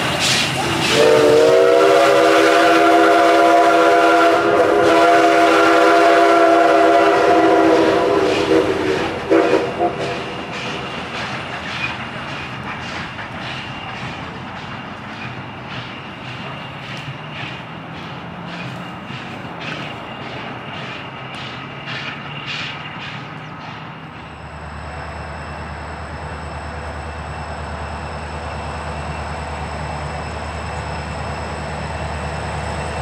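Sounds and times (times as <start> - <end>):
rhythmic beat of passing train: 0.0 - 33.0
steam whistle blasts: 0.6 - 10.4.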